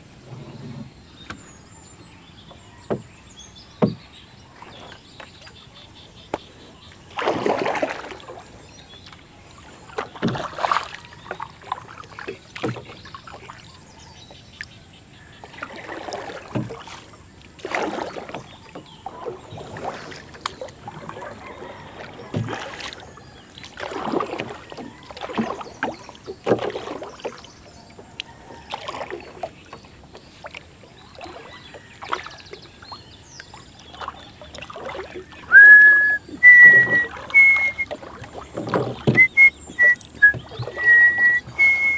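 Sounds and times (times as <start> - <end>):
paddle splashing in water: 0.0 - 41.9
high whistle-like tone: 35.5 - 37.9, 39.1 - 41.9.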